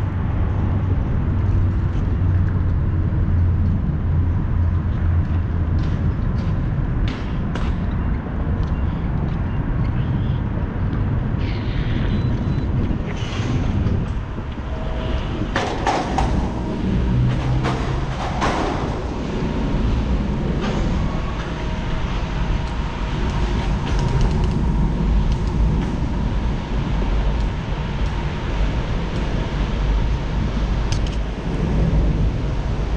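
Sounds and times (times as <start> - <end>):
wind on microphone: 0.0 - 32.9
bicycle tyres rumbling on concrete: 10.9 - 32.9.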